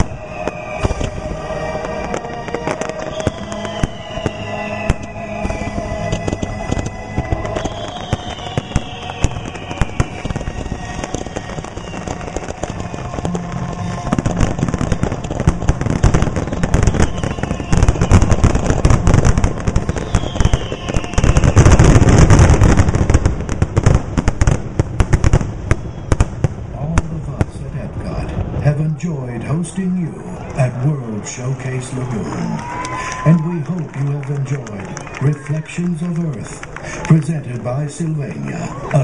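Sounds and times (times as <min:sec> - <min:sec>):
fireworks shell bursts and crackle: 0:01.8 - 0:26.6.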